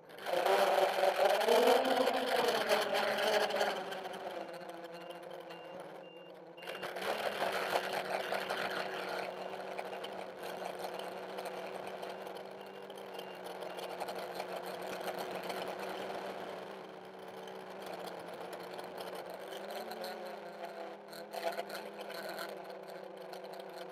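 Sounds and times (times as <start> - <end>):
quadcopter motors whining: 0.1 - 16.4.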